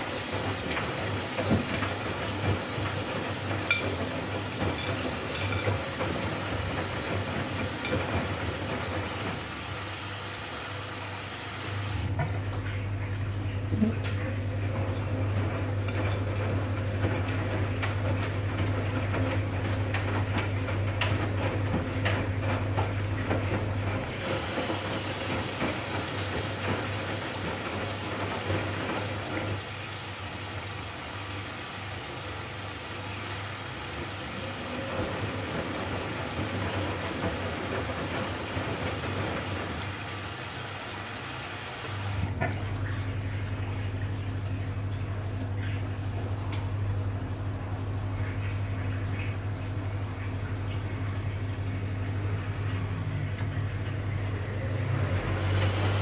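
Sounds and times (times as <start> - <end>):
washing machine drum tumbling: 0.0 - 56.0
water hissing through inlet: 55.0 - 56.0.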